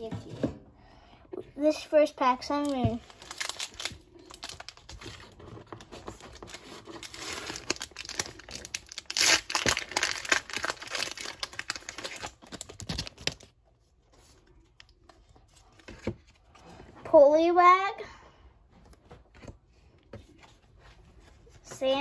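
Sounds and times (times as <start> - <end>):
foil wrapper tearing and crinkling: 3.0 - 13.5.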